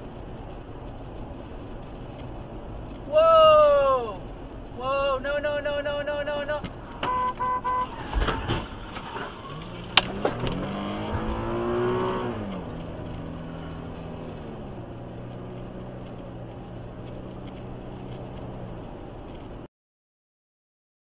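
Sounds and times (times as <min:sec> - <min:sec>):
car engine accelerating: 0:08.6 - 0:19.7.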